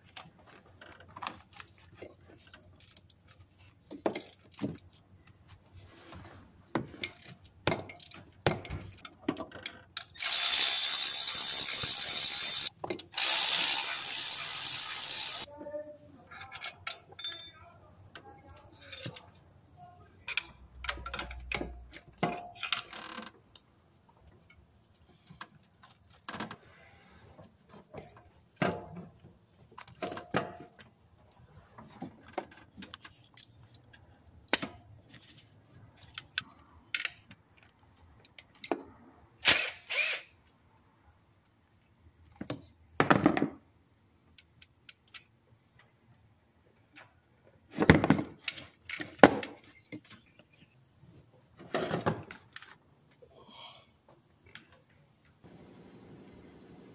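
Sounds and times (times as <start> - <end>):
tools clicking and clunking: 0.0 - 5.9, 6.7 - 15.5, 20.3 - 23.6.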